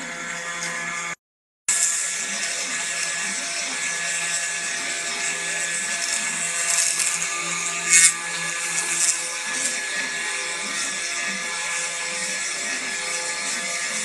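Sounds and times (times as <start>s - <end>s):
spindle whining: 5.7s - 10.0s
bit hissing cutting wood: 5.8s - 9.8s.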